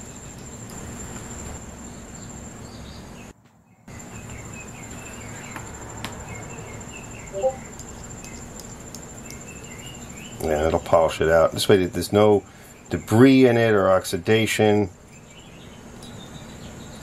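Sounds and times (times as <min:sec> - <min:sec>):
high steady whine: 0:00.0 - 0:03.3, 0:03.9 - 0:11.1.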